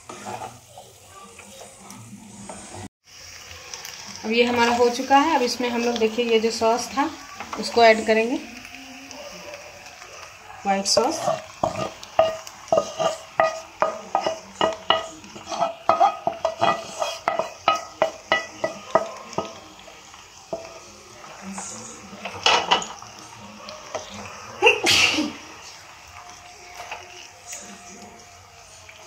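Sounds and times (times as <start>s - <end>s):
wooden spatula scraping a pan: 0.0s - 2.9s, 10.8s - 19.6s.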